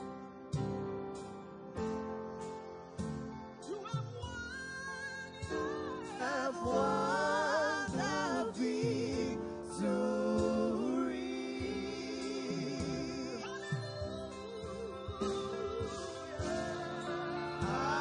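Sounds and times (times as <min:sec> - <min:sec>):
instrumental backing: 0:00.0 - 0:18.0
group singing gospel song: 0:05.4 - 0:18.0.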